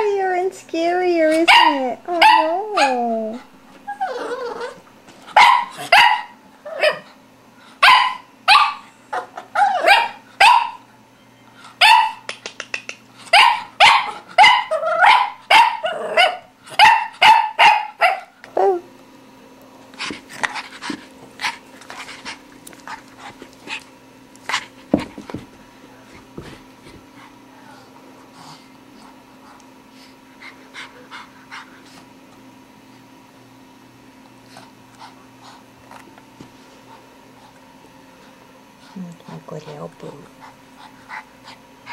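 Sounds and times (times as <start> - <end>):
puppy barking: 1.4 - 3.0, 5.3 - 7.1, 7.8 - 10.8, 11.8 - 12.3, 13.3 - 18.4.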